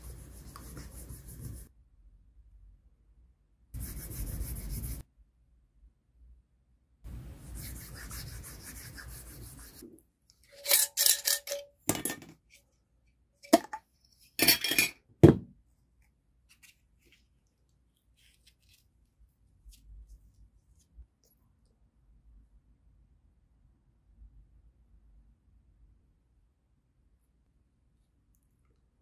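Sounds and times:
glass jar clinking and scraping: 10.4 - 12.4, 14.4 - 15.0.

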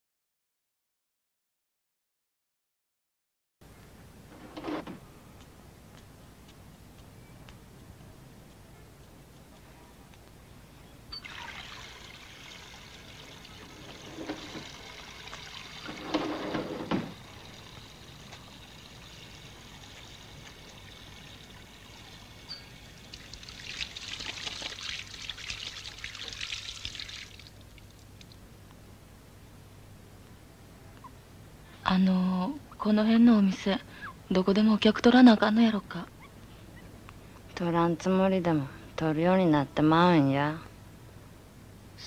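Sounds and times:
tap water running into basin: 11.2 - 28.4
water splashing: 17.1 - 28.4.

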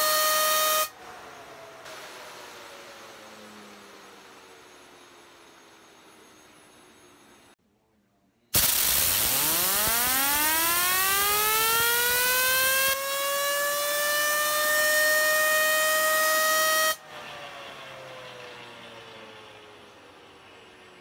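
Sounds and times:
fidget spinner whine: 0.0 - 7.6, 9.1 - 21.0
compressed air hissing: 8.6 - 9.8.

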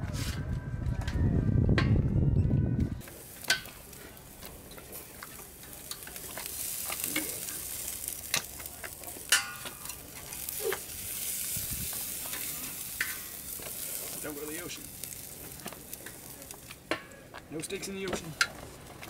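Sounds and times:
steak sizzling on a grill: 3.0 - 19.0
tongs clicking on metal grill: 3.4 - 3.8, 4.7 - 10.9, 11.8 - 13.9.

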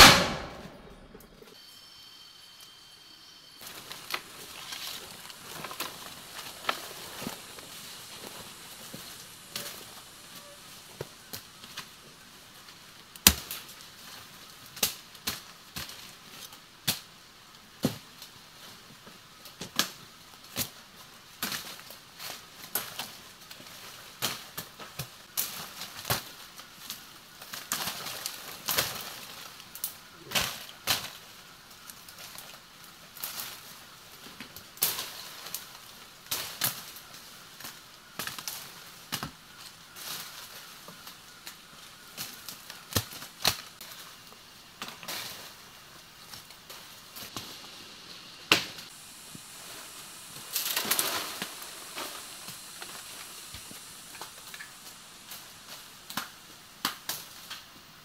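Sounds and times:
leaves and branches rustling: 3.5 - 58.0
brush crackling and snapping: 3.6 - 12.0, 19.5 - 47.6, 48.5 - 57.8.

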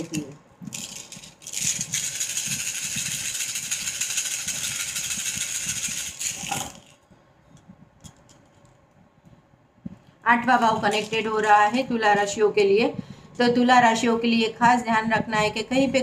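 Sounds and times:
shells shaken in hands: 0.0 - 7.0, 10.8 - 11.9.

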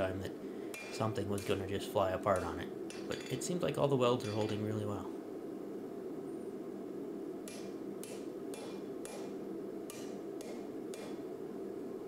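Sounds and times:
steady low hum: 0.0 - 12.0
hammer striking metal on anvil: 0.7 - 1.6, 2.3 - 3.4, 4.2 - 4.6, 7.5 - 11.2.

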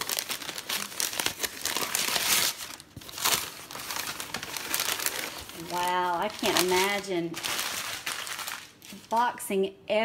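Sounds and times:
tissue paper crinkling: 0.0 - 9.3.

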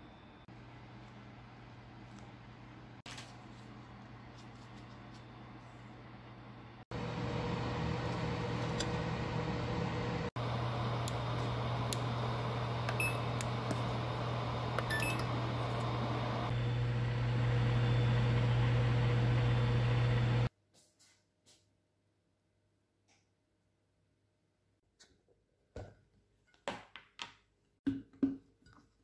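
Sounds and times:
electric oven humming: 0.0 - 20.5.

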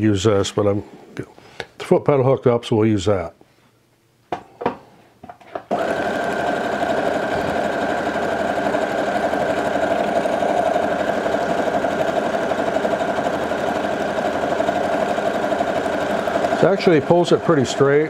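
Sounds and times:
sewing machine stitching: 5.7 - 18.0.

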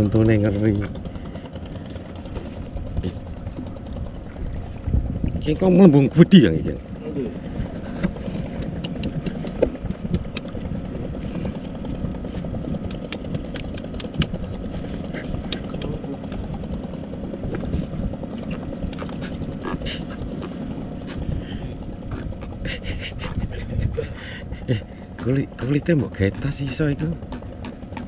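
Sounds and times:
low rumble: 0.0 - 27.9
sharp clicks and taps: 8.6 - 10.6.

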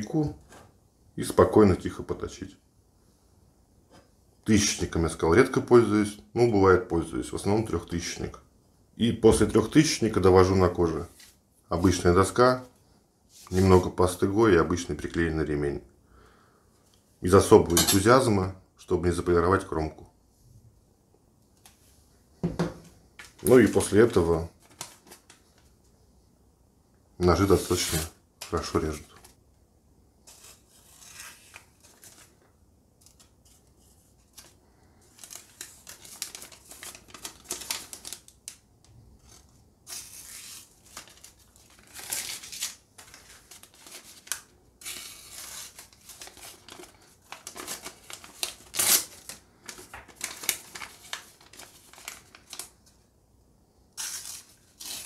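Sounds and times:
paper crinkling: 23.2 - 25.7, 30.3 - 53.0.

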